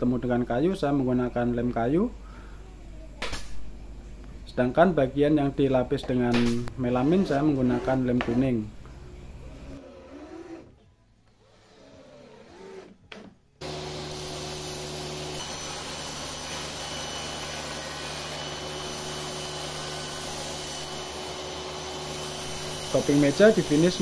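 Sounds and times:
table saw humming: 0:13.6 - 0:24.0.

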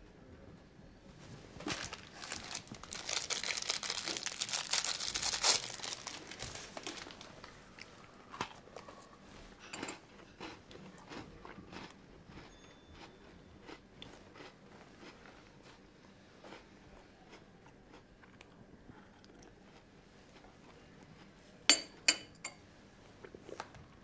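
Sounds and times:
paper crinkling and rustling: 0:01.6 - 0:07.6.

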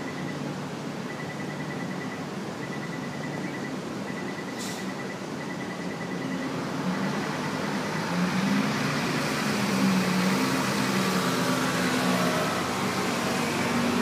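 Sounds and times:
road traffic: 0:00.0 - 0:14.0
bus engine driving past: 0:06.5 - 0:14.0.

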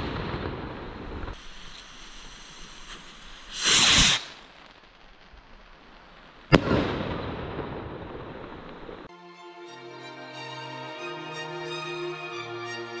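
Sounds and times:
firework rocket whoosh: 0:00.0 - 0:09.1
firework bang with echo: 0:06.5 - 0:08.6.

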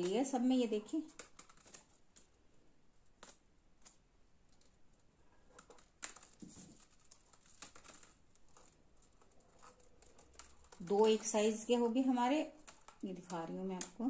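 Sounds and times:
rope rustling: 0:01.0 - 0:02.4, 0:03.0 - 0:11.8.

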